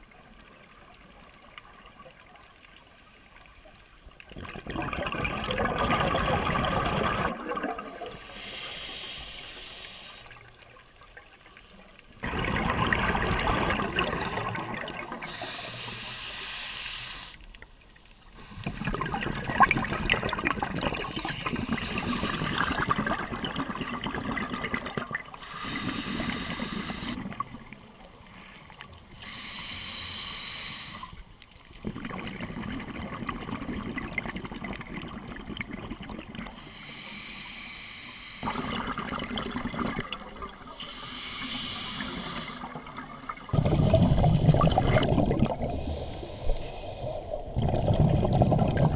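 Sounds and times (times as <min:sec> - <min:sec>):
bubbling underwater exhalations: 0:04.4 - 0:08.2, 0:12.2 - 0:15.6, 0:18.6 - 0:27.7, 0:31.8 - 0:36.5, 0:38.4 - 0:40.7, 0:42.6 - 0:46.2, 0:47.2 - 0:48.9
regulator hissing inhalations: 0:08.0 - 0:10.4, 0:15.2 - 0:17.5, 0:18.3 - 0:19.0, 0:21.4 - 0:22.9, 0:25.4 - 0:27.2, 0:29.1 - 0:31.3, 0:36.5 - 0:38.8, 0:40.7 - 0:42.8, 0:45.7 - 0:47.5.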